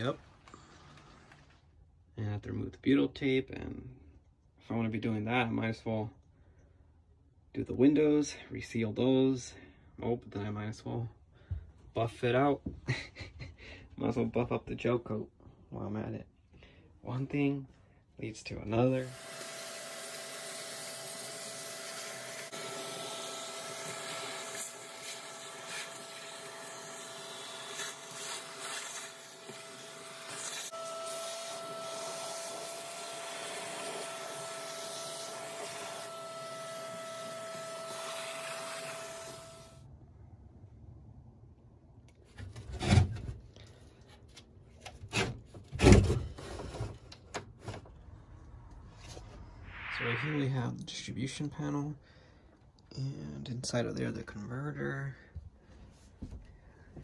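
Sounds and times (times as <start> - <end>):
vacuum cleaner whining: 19.0 - 39.8
wood scraping and knocking on wood: 42.2 - 47.9.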